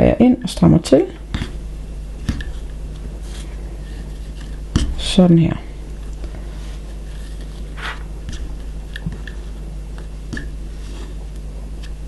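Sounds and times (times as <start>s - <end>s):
steady low hum: 0.0s - 12.0s
hands rustling cord: 2.2s - 5.0s, 5.8s - 12.0s.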